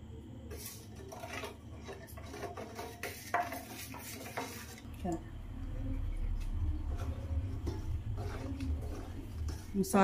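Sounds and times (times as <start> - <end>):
metal spoon scraping a pot: 0.5 - 4.9, 6.6 - 10.0.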